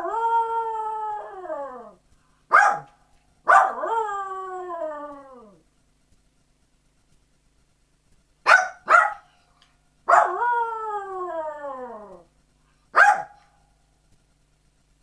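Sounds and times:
small dog barking: 2.5 - 3.8, 8.4 - 9.4, 10.1 - 10.4, 12.9 - 13.6
dog howling: 3.5 - 5.6, 10.1 - 12.2.

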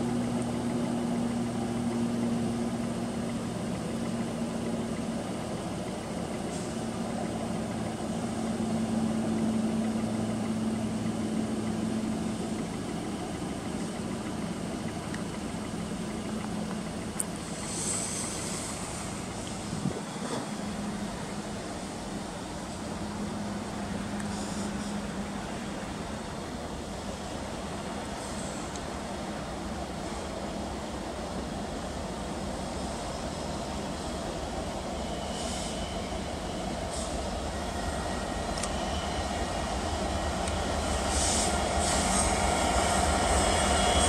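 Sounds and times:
engine droning: 0.0 - 44.0
short high hiss: 17.6 - 19.7.

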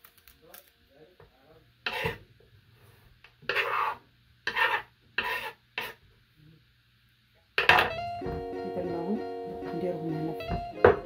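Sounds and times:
knife scraping fruit: 1.9 - 2.2, 3.4 - 6.0.

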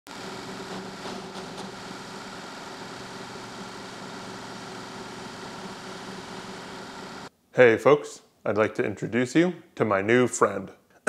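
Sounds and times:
drill press motor humming: 0.1 - 7.3.

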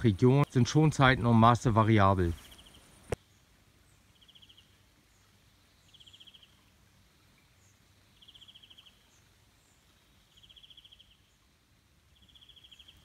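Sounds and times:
faint riverside ambience: 0.0 - 13.0.

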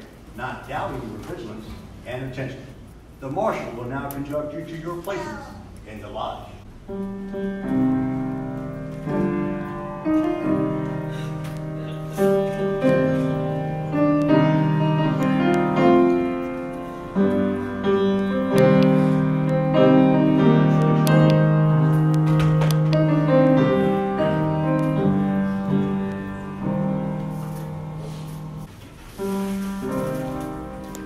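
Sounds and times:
slow piano chords: 6.6 - 31.0.

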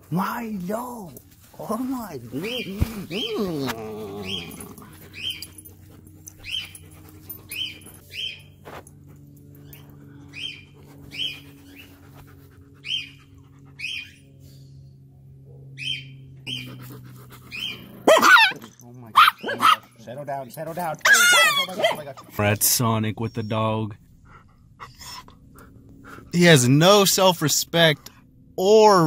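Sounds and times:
faint low hum: 0.0 - 29.0
small dog whining: 2.4 - 8.4, 15.9 - 19.8, 21.0 - 22.3, 24.8 - 25.5.

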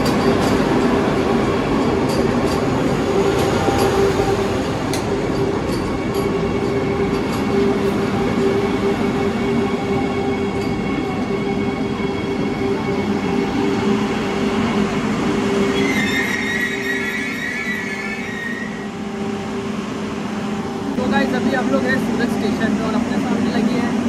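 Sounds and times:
train wheels rumbling on rails: 0.0 - 24.0
high squeal: 15.6 - 19.0.

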